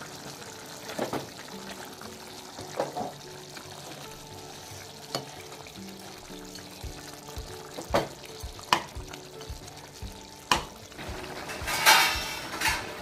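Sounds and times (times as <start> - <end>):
gravy sizzling: 0.0 - 13.0
spoon scraping pan: 10.5 - 13.0.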